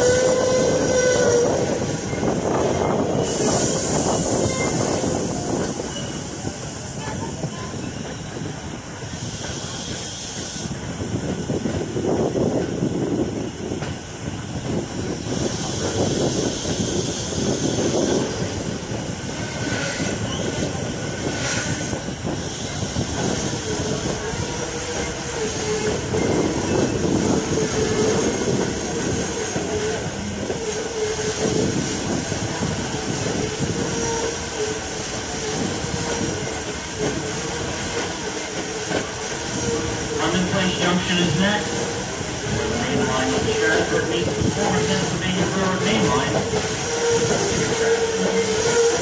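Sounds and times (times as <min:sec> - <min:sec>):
steam hiss: 0:00.0 - 0:49.0
train wheels rumbling and clattering: 0:00.0 - 0:49.0
wheel squeal: 0:03.2 - 0:06.4.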